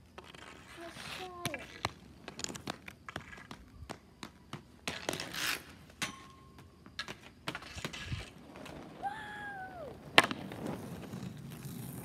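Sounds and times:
hockey stick and ball clacking: 0.2s - 8.8s, 10.1s - 12.0s
scraping hiss on concrete: 4.9s - 6.0s.

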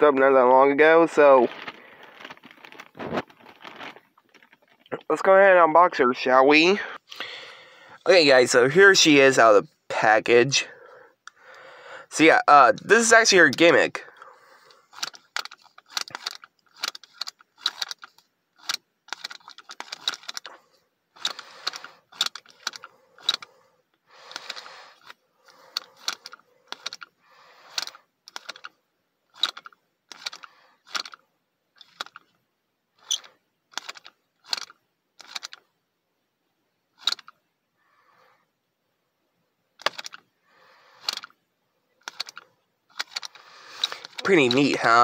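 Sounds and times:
plastic toy scraping: 1.4s - 4.9s, 14.6s - 23.6s, 24.2s - 31.2s, 31.8s - 32.3s, 33.0s - 35.6s, 37.0s - 37.4s, 39.8s - 40.2s, 40.9s - 41.4s, 42.0s - 45.0s
hard plastic clicking: 14.9s - 20.6s, 21.2s - 23.5s, 24.3s - 27.1s, 33.0s - 35.7s, 37.0s - 37.4s, 39.8s - 40.2s, 41.0s - 41.4s, 42.0s - 45.0s.

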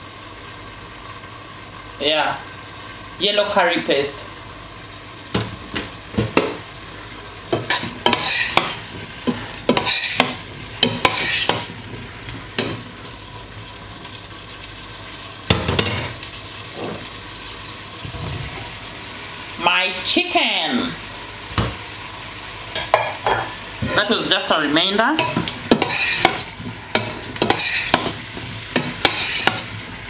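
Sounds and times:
vegetables sizzling in oil: 0.0s - 30.0s
spoon scraping a pot: 7.6s - 11.7s, 25.2s - 28.2s, 28.8s - 29.7s.

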